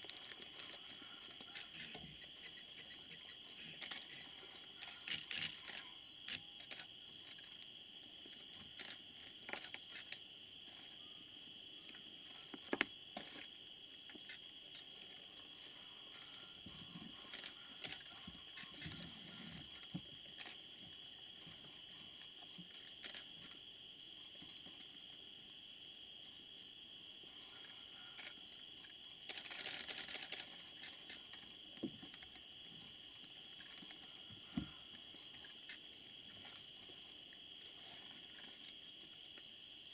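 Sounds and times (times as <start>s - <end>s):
night insects trilling: 0.0s - 39.9s
faint clicks and rustles: 29.3s - 34.2s.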